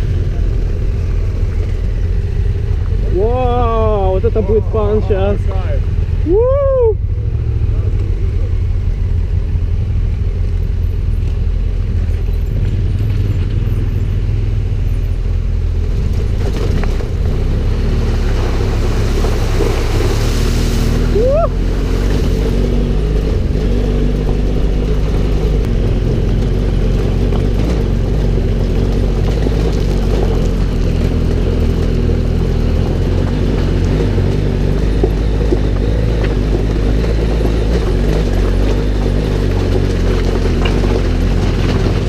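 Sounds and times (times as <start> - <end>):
rush of noise: 0.0 - 12.1, 16.0 - 31.2
motorcycle engine drone: 0.0 - 42.0.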